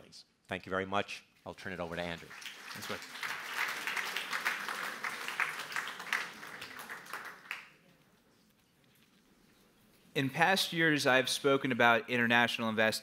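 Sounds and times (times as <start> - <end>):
audience applauding: 2.0 - 7.8.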